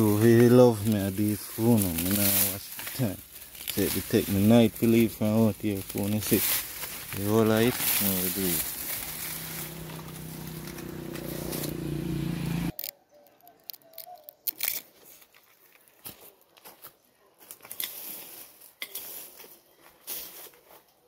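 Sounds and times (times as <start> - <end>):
footsteps on dry grass and leaves: 0.0 - 12.8, 14.8 - 21.0
low hum: 6.6 - 12.7.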